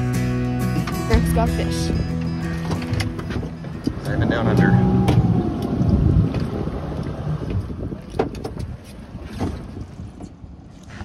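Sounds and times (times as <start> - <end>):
wind buffeting microphone: 2.8 - 11.0.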